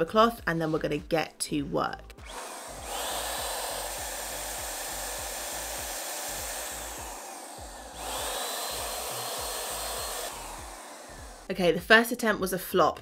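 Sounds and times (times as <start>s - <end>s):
electric paint sprayer whining: 2.2s - 11.5s.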